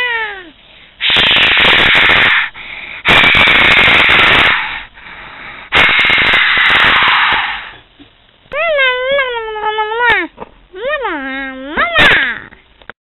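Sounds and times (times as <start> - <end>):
bursts of hissing: 0.6 - 7.8.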